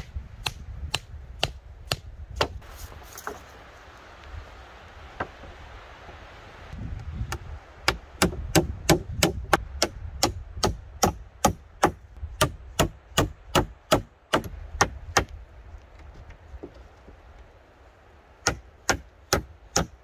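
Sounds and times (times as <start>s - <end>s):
hammering on wooden planks: 0.0s - 2.6s, 7.3s - 15.4s, 18.4s - 20.0s.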